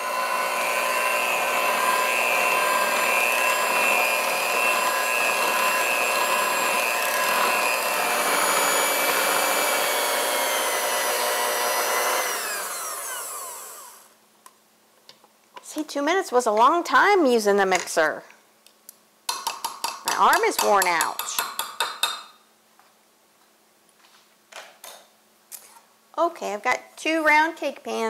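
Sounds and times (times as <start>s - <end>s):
electric hand mixer whining: 0.0s - 14.1s
mixer winding down: 0.0s - 14.1s.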